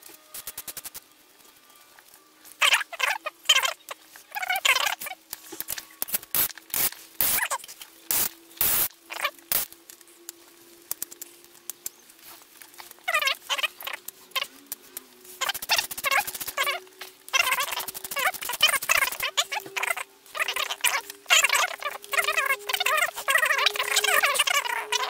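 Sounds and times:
faint steady hum: 0:00.0 - 0:25.0
high squeaky chirps: 0:02.6 - 0:05.2, 0:07.2 - 0:09.4, 0:11.8 - 0:14.6, 0:15.3 - 0:25.0.

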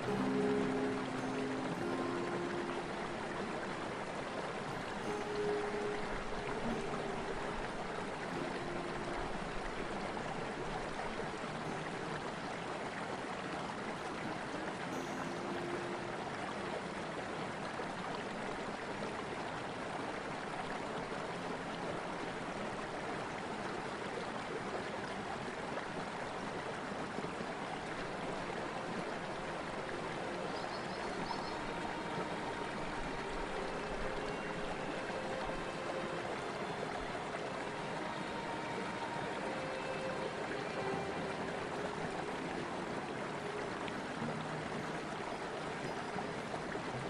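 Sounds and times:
river rushing through rapids: 0:00.0 - 0:47.0.

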